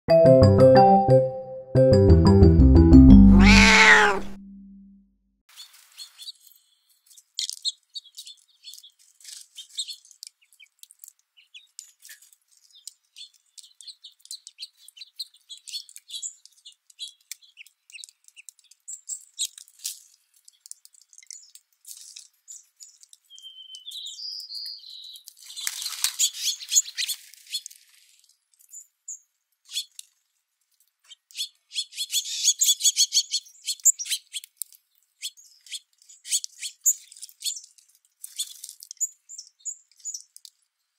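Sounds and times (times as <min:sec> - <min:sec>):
beaks pecking at seed: 0:07.1 - 0:24.0, 0:31.0 - 0:40.6
bird chirps: 0:23.3 - 0:25.3.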